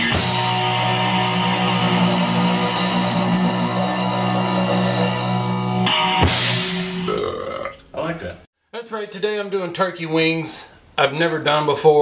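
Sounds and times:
rock music with drums and guitar: 0.0 - 7.3.

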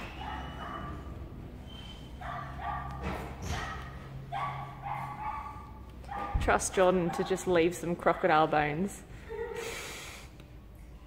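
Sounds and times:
dog barking: 0.0 - 1.1, 2.2 - 7.5.

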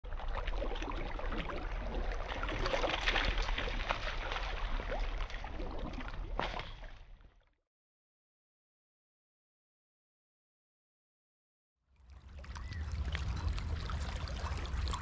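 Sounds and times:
steady low rumble: 12.4 - 15.0.

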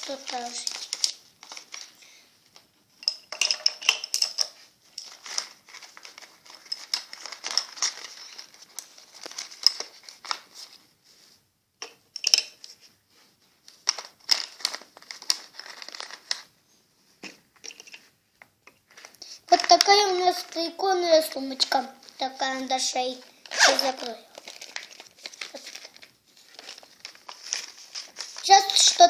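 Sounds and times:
plastic pouch crinkling: 0.0 - 2.0, 5.0 - 10.8, 13.8 - 16.5, 18.9 - 29.0
zip opening: 23.5 - 24.0.

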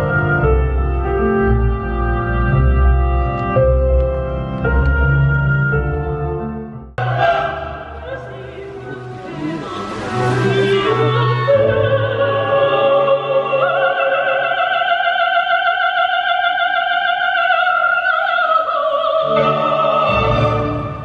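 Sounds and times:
orchestra: 0.0 - 21.0
operatic singing: 7.0 - 21.0.

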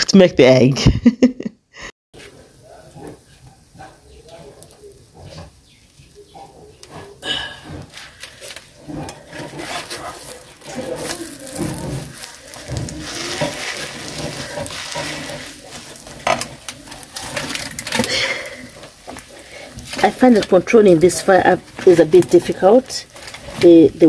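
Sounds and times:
clicks and crackles: 2.9 - 24.0
omelette sizzling in a pan: 7.7 - 24.0.

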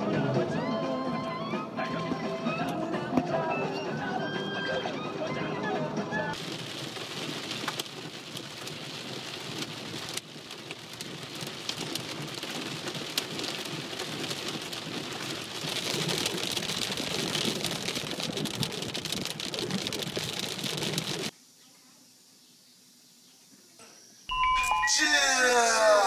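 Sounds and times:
heavy rain on car windshield: 6.3 - 21.3.

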